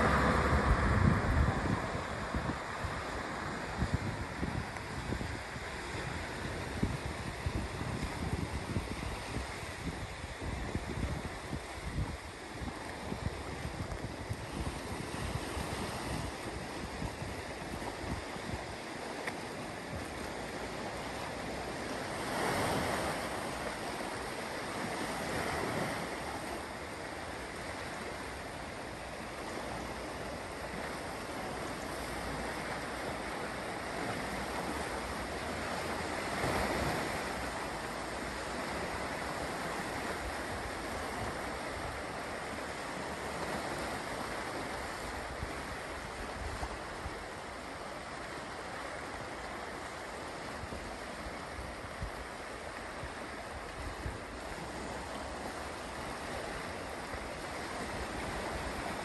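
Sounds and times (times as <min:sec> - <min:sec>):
wind buffeting microphone: 0:00.0 - 0:26.6, 0:50.3 - 0:59.0
waves washing against rocks: 0:00.0 - 0:59.0.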